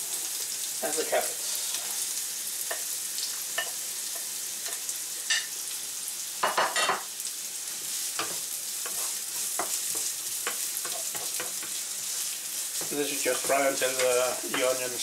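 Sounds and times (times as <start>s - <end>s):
vegetables sizzling in a frying pan: 0.0s - 15.0s
wooden spatula scraping a pan: 1.4s - 2.8s, 7.8s - 14.8s.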